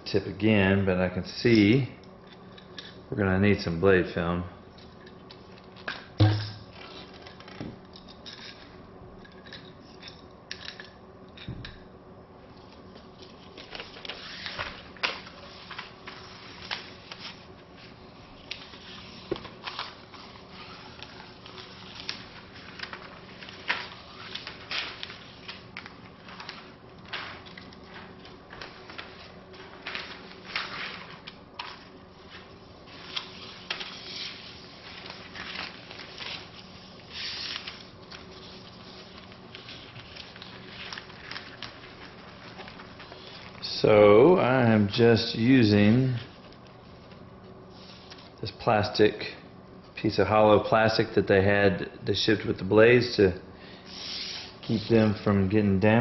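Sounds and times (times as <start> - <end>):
faint steady hum: 0.0 - 56.0
plastic crinkling and clicking: 6.7 - 11.8, 18.4 - 43.8.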